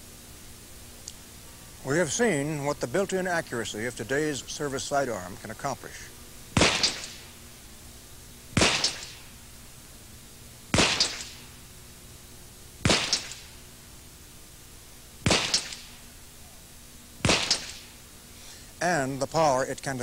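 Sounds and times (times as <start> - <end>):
pistol shots with echo: 6.6 - 7.3, 8.6 - 9.3, 10.7 - 11.5, 12.8 - 13.6, 15.2 - 16.0, 17.2 - 17.9.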